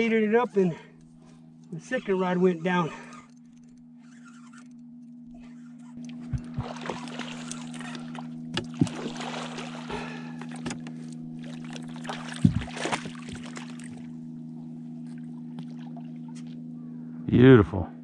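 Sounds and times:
steady low hum: 0.0 - 18.0
fish splashing in water: 6.2 - 14.2.

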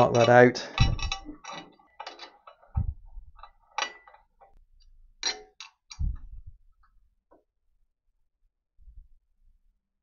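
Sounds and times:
metal tool clinking in steel plate: 0.0 - 2.7, 3.4 - 4.6, 5.2 - 6.0.

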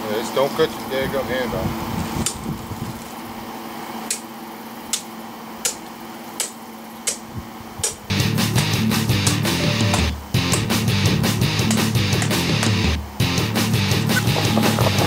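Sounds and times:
rock music with electric guitar: 8.1 - 15.0.

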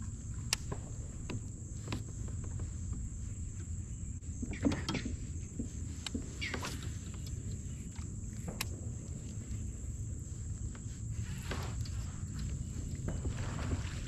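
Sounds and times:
thin high hum: 0.0 - 14.0
clicks and knocks of fishing gear: 0.3 - 3.0.

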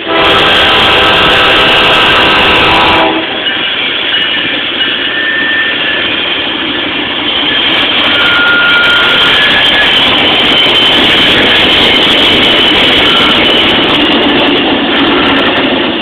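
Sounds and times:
locomotive air horn: 0.0 - 3.4, 8.2 - 9.2
train passing: 0.0 - 16.0
locomotive engines: 0.8 - 16.0.

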